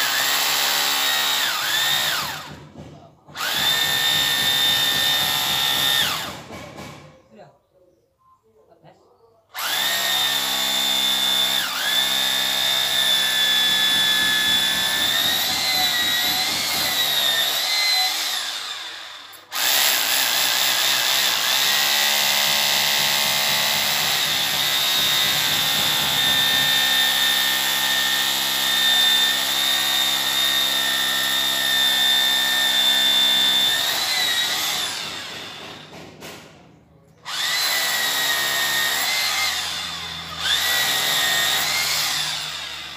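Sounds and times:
electric drill whining: 0:00.0 - 0:02.7, 0:03.3 - 0:06.5, 0:09.6 - 0:36.0, 0:37.2 - 0:42.9.

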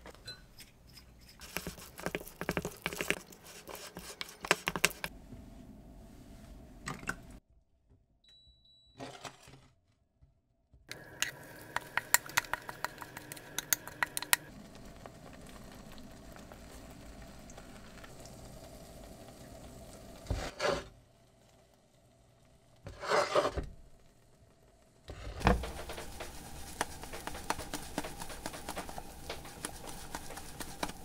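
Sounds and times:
handling and scraping: 0:00.0 - 0:05.2, 0:20.3 - 0:20.9, 0:22.9 - 0:23.7, 0:25.1 - 0:31.0
food sizzling in a pan: 0:10.9 - 0:23.2, 0:25.4 - 0:31.0.

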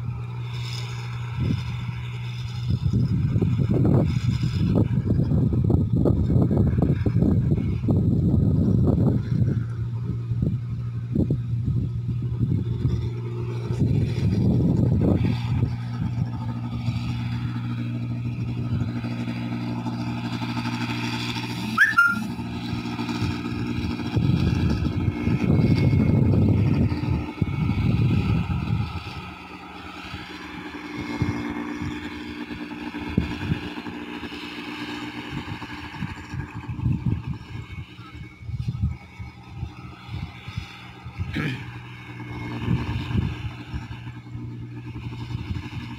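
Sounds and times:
combine harvester engine drone: 0:00.0 - 0:45.9
sharp click and squeak: 0:21.8 - 0:22.3.

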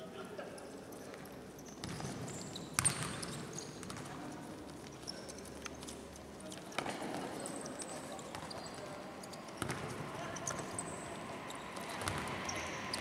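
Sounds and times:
shoes squeaking on court floor: 0:00.6 - 0:13.0.

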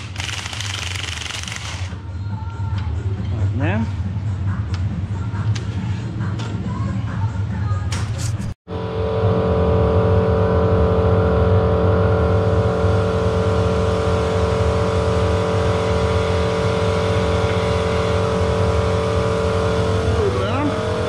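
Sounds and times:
machine humming: 0:08.7 - 0:21.0.

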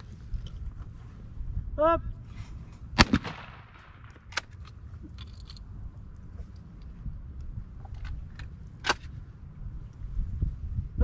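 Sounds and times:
wind rumble on microphone: 0:00.0 - 0:11.0.

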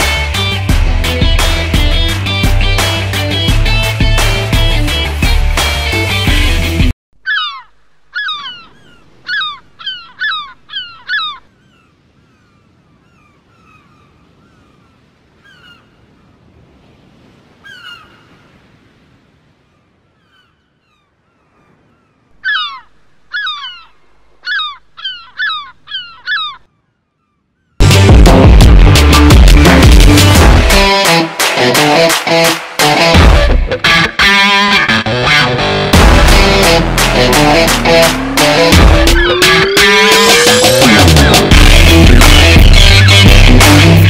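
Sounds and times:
gulls calling: 0:07.2 - 0:16.5, 0:17.4 - 0:18.9, 0:19.5 - 0:27.9, 0:30.1 - 0:44.0.

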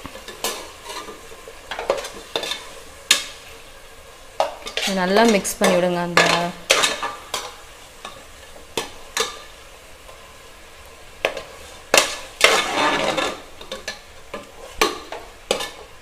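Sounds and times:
faint sizzle: 0:00.0 - 0:16.0
metal spatula scraping a pot: 0:00.2 - 0:03.4, 0:04.4 - 0:08.2, 0:11.2 - 0:16.0.

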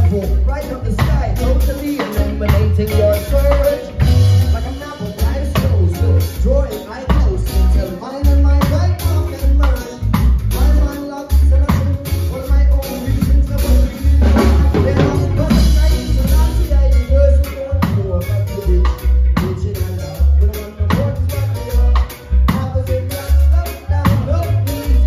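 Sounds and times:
acoustic guitar: 0:00.0 - 0:25.0
drum kit beat: 0:00.0 - 0:25.0
electric bass: 0:00.0 - 0:25.0
people singing: 0:12.9 - 0:17.9.

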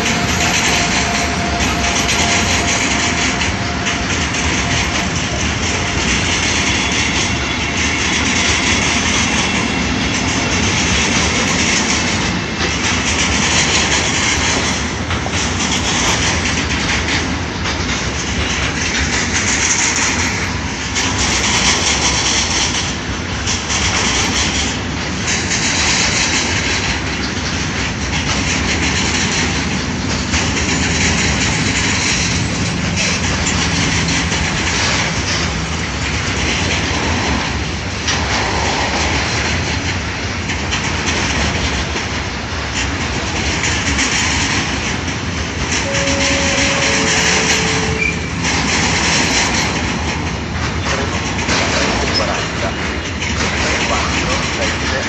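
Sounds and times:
freight train wagons rumbling: 0:00.0 - 0:55.0
wheels clacking over rail joints: 0:00.0 - 0:55.0
two-note tone: 0:45.8 - 0:48.5.

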